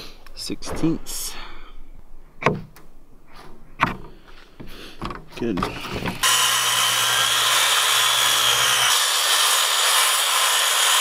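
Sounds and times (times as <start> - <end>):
circular saw cutting plywood: 6.2 - 11.0.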